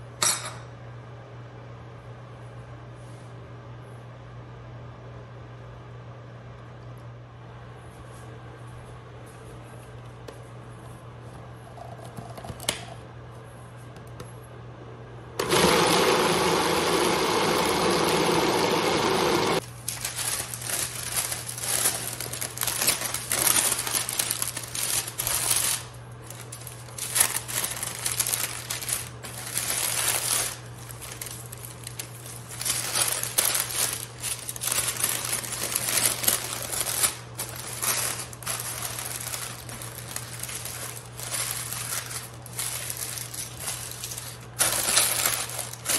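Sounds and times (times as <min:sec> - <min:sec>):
food processor running: 0:15.4 - 0:25.7, 0:26.4 - 0:45.9
parchment paper crinkling: 0:19.6 - 0:45.9.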